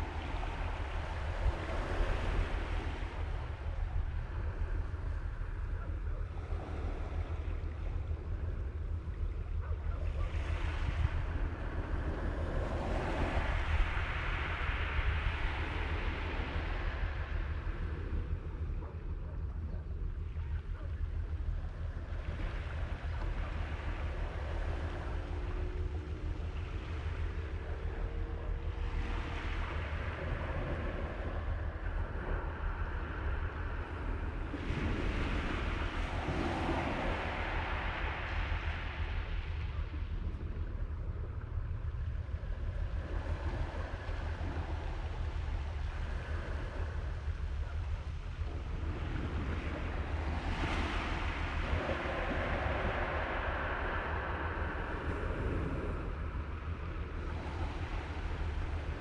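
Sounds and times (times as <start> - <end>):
small waves washing onto beach: 0.0 - 19.4, 20.2 - 59.0
faint steady hum: 0.0 - 59.0
wind buffeting microphone: 0.0 - 59.0.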